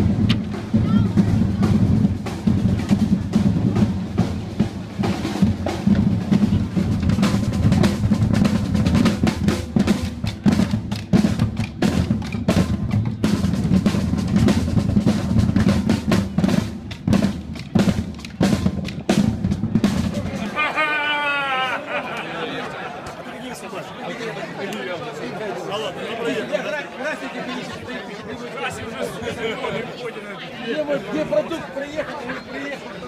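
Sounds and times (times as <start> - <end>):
field drums fast beat: 0.0 - 21.2.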